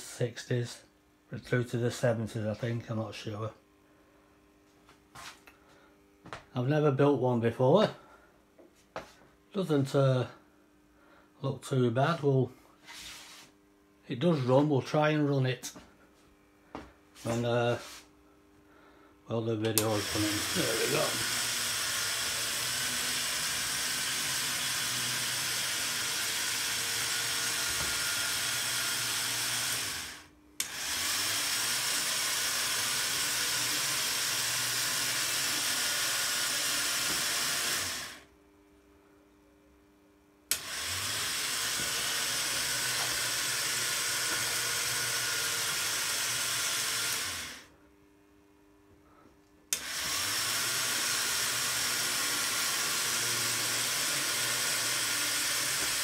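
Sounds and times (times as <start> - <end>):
electric motor whirring: 19.7 - 38.3, 40.5 - 47.7, 49.7 - 56.0.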